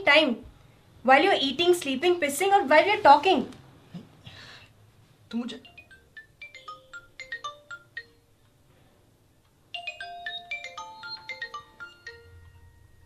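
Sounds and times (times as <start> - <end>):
marimba phone ringtone: 5.6 - 8.4, 9.7 - 13.0.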